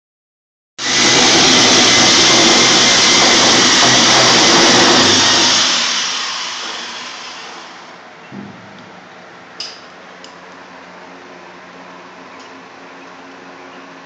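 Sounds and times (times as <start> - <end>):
rotary hammer drilling concrete: 0.8 - 7.9.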